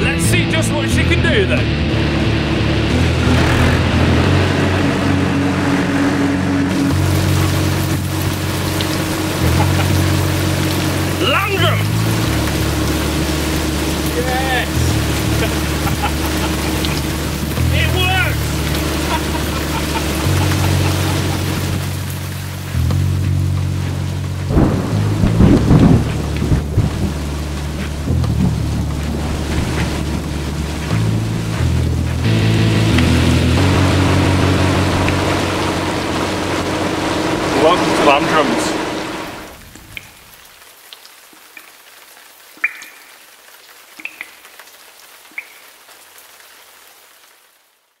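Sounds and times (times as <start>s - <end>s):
low steady drone: 0.0s - 39.8s
heavy rain pouring into puddle: 0.9s - 48.0s
falling water hiss: 4.2s - 47.7s
boots stomping in water: 22.2s - 32.3s
water drops plinking: 42.6s - 43.2s, 44.0s - 44.6s, 45.3s - 45.7s.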